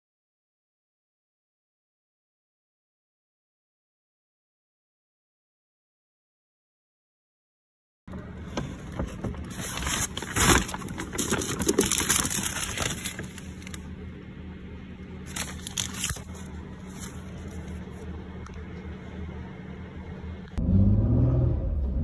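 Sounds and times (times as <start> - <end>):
steady low hum: 8.1 - 22.0
paper bag and plastic container crinkling: 8.8 - 13.9, 15.3 - 18.0.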